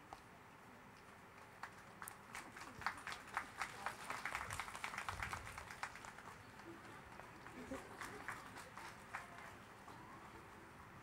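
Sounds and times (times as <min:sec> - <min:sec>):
applause: 0:01.3 - 0:10.1
hand clap: 0:01.6 - 0:06.2.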